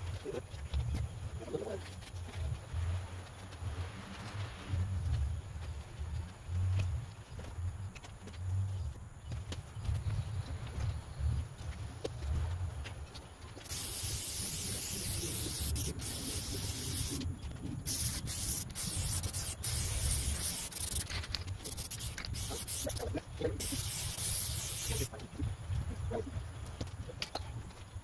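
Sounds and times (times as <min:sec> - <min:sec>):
aerosol spray can hissing: 0:13.6 - 0:17.2, 0:17.8 - 0:25.1.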